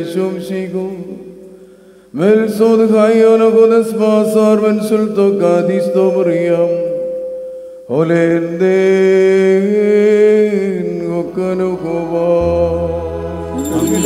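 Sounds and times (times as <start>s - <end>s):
man chanting: 0.0s - 1.3s, 2.2s - 7.0s, 7.9s - 14.0s
low steady tone: 5.3s - 8.1s.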